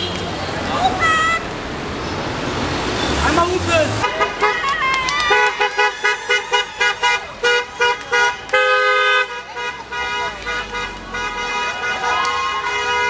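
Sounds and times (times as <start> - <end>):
car horn honking: 0.0 - 0.4, 3.9 - 4.7, 5.3 - 13.0.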